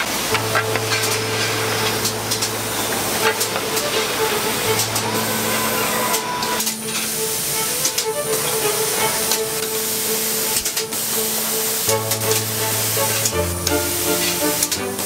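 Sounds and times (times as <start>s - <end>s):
factory machinery hiss: 0.0s - 14.8s
scattered clicks: 10.6s - 10.9s.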